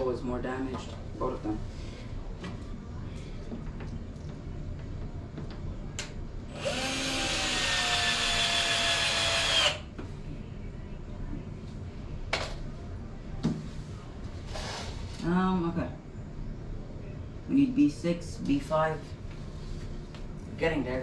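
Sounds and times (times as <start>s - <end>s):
power drill whirring: 6.5s - 9.8s.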